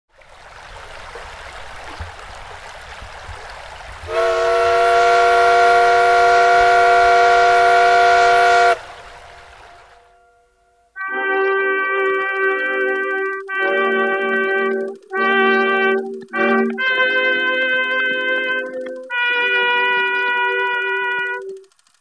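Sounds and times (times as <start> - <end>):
steady hiss: 0.4 - 10.2
loud whistle chord: 4.1 - 9.0.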